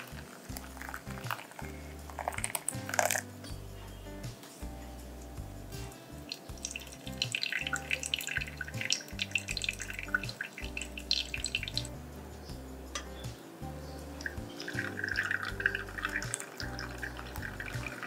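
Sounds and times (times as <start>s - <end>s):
coffee dripping: 0.0s - 3.3s, 6.2s - 12.0s, 14.2s - 18.0s
background music: 0.0s - 18.0s.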